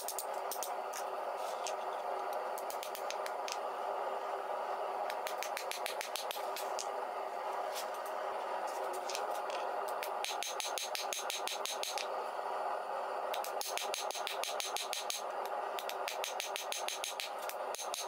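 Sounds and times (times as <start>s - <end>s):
steady background roar: 0.0s - 18.0s.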